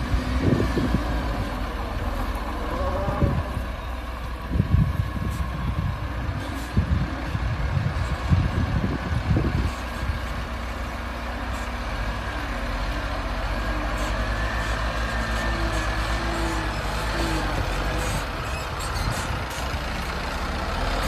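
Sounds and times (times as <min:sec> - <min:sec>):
diesel truck engine labouring: 0:00.0 - 0:21.0.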